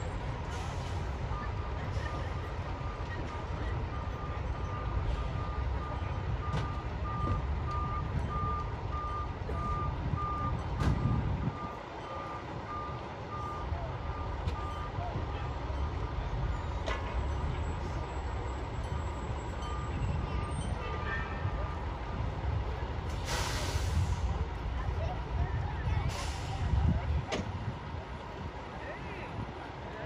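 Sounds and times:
diesel engines idling: 0:00.0 - 0:30.0
back-up alarm beeping: 0:02.3 - 0:15.0.

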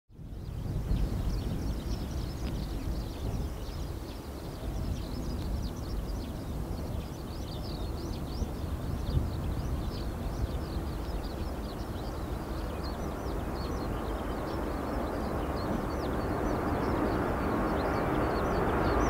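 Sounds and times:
small birds chirping: 0:00.1 - 0:19.0
jet engines rumbling: 0:00.2 - 0:19.0.

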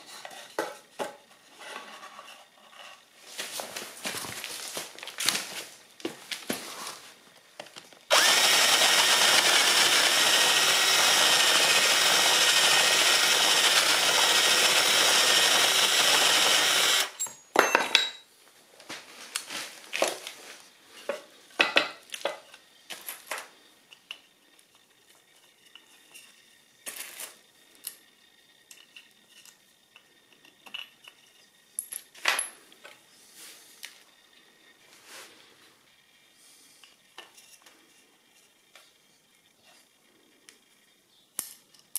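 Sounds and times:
drill boring into wood: 0:08.1 - 0:17.2.

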